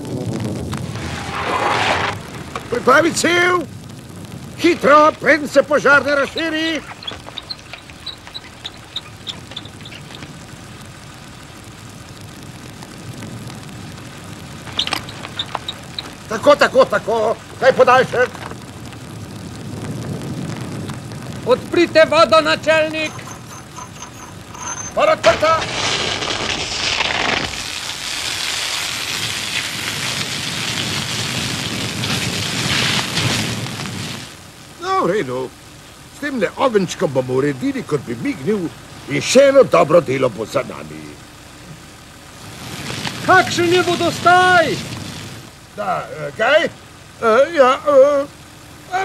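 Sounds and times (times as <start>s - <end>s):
fire hose spraying water: 0.0s - 49.0s
short high chirps: 22.9s - 25.0s.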